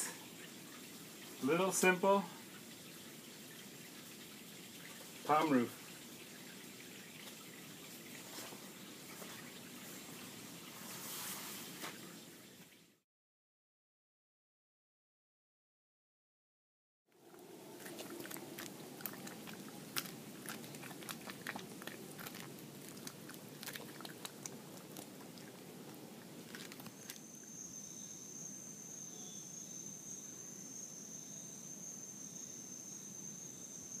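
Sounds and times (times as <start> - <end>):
animal chewing fruit: 17.2 - 27.2.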